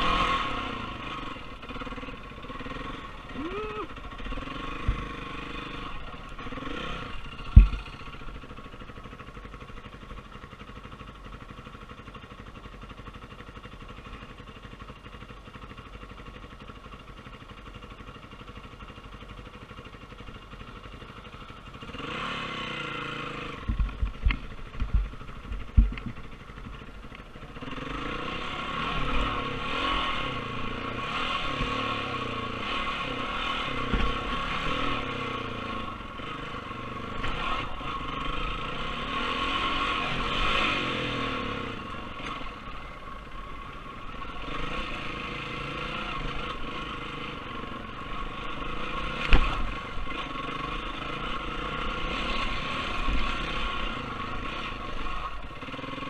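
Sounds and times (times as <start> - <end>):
dirt bike engine revving: 0.0 - 9.9, 21.7 - 26.1, 27.4 - 56.0.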